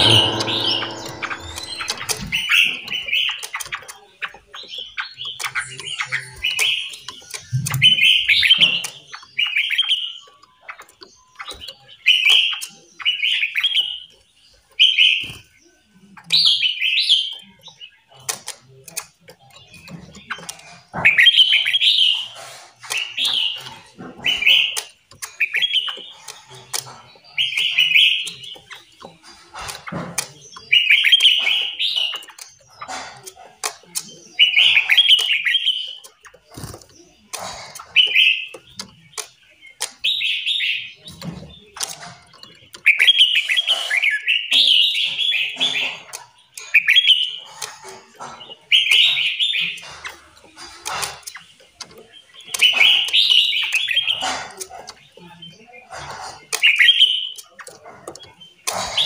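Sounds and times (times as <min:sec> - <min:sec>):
songbirds chirping: 0:00.0 - 0:59.0
faint clicks: 0:45.6 - 0:59.0.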